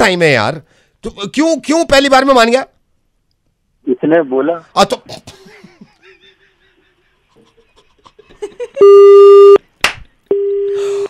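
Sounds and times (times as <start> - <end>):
telephone busy tone beeps: 8.8 - 9.6, 10.3 - 10.8.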